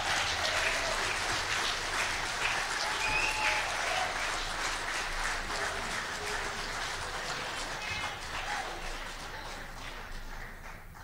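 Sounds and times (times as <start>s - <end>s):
audience applauding: 0.0s - 11.0s
high call from crowd: 2.5s - 6.8s.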